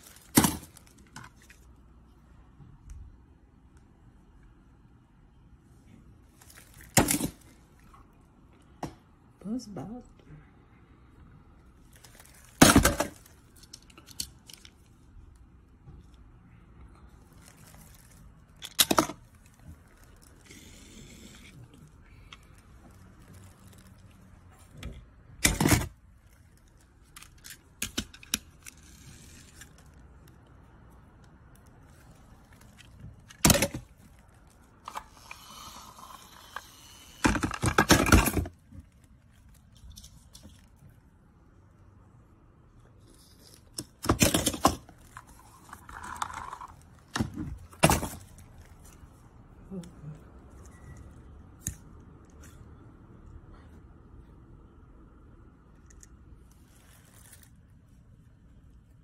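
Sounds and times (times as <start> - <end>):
plastic toys clicking and clattering: 11.9 - 15.0, 17.4 - 24.2, 24.8 - 30.0, 31.6 - 40.7, 43.1 - 49.0.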